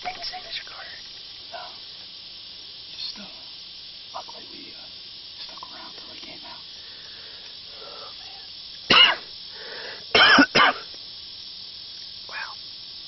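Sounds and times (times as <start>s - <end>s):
man coughing: 8.9s - 9.3s, 10.1s - 10.9s.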